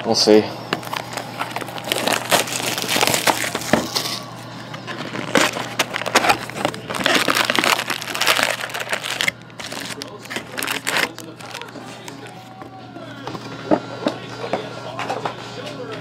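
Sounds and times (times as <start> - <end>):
plastic shrink wrap crinkling: 0.7 - 12.7
foil card packs rustling: 0.7 - 12.9.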